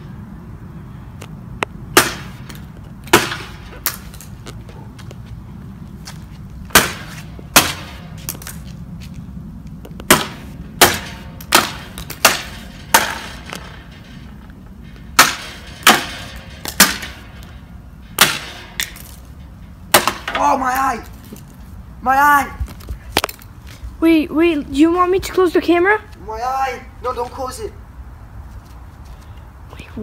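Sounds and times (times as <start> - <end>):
hammer striking backboard panel: 1.9 - 3.6, 6.7 - 8.0, 10.1 - 13.7, 15.2 - 17.2, 18.2 - 18.9, 19.9 - 20.4
panel breaking: 15.0 - 19.2.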